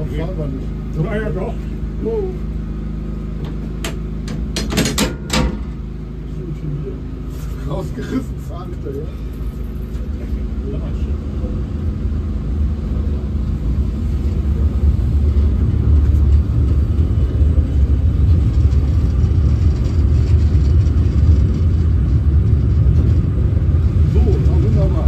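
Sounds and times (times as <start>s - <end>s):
train rumbling: 7.5s - 25.0s.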